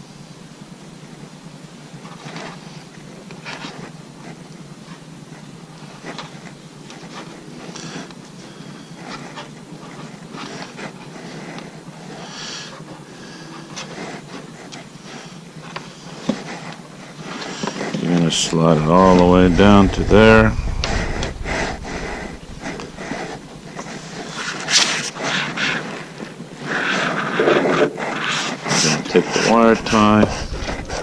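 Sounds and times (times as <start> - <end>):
fabric rubbing on microphone: 17.7 - 26.0, 28.1 - 31.0.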